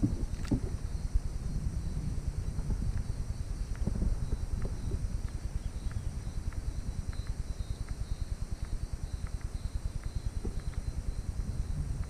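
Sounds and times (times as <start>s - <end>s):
wind buffeting microphone: 0.0s - 12.0s
faint light ticks: 2.9s - 12.0s.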